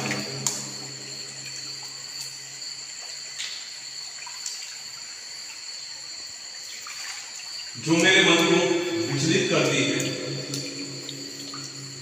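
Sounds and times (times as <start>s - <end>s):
low hum: 0.0s - 2.4s, 7.8s - 12.0s
steady high hiss: 0.0s - 4.1s, 7.6s - 12.0s
water splashing underfoot: 6.7s - 12.0s.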